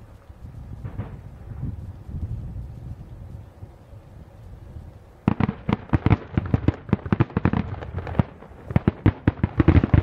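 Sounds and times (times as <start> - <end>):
distant fireworks bangs: 0.8 - 1.9, 5.2 - 10.0.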